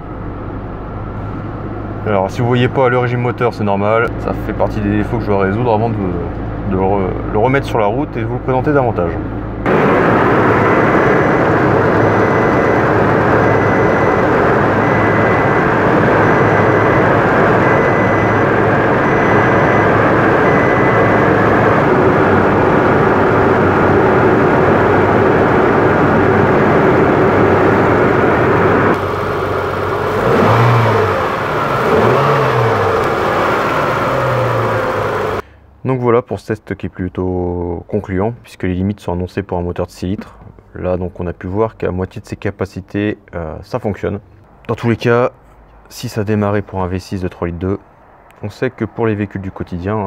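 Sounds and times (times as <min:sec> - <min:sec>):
car engine running: 0:08.7 - 0:35.4.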